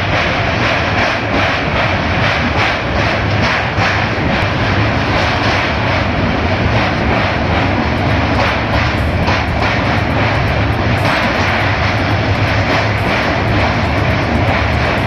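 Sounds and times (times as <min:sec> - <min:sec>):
rushing wind: 0:00.0 - 0:15.0
train wheels rumbling on rails: 0:00.0 - 0:15.0.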